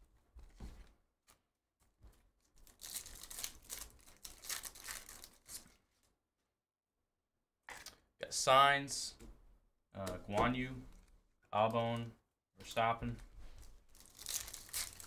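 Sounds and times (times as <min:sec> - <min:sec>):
faint wrapper rustles: 0:01.2 - 0:06.2, 0:10.9 - 0:11.3, 0:13.1 - 0:15.0
wrapper crinkling and tearing: 0:02.4 - 0:05.8, 0:13.6 - 0:15.0.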